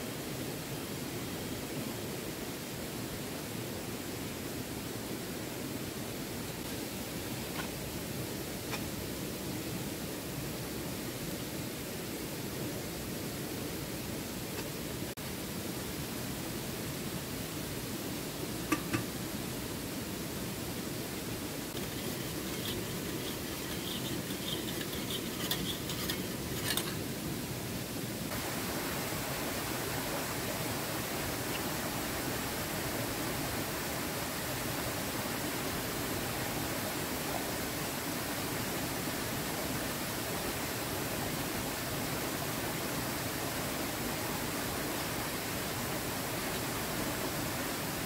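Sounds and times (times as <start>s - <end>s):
steady rushing hiss: 0.0s - 48.0s
river flowing over stones: 11.8s - 48.0s
spoon clinking in metal mug: 21.8s - 27.0s.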